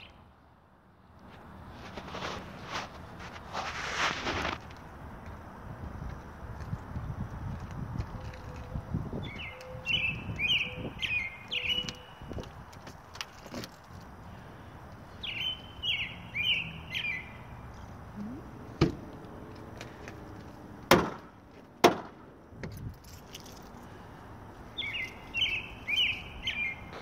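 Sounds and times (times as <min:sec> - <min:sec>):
songbird singing: 0:08.1 - 0:12.7, 0:14.2 - 0:20.7, 0:24.6 - 0:27.0
sharp knocks: 0:20.9 - 0:22.2.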